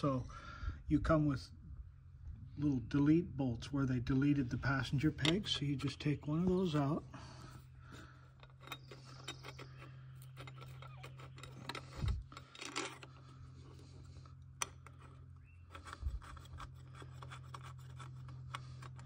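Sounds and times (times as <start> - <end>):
steady low hum: 0.0 - 19.0
bolt scraping and clicking: 5.0 - 6.8, 7.9 - 19.0.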